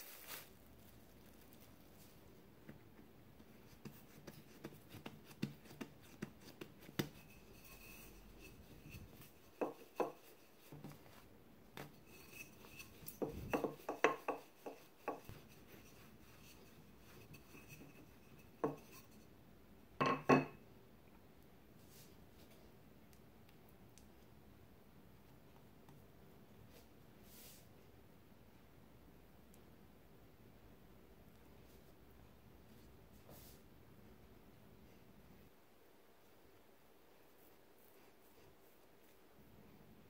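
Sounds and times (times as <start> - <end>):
rolling pin on dough: 2.6 - 19.2.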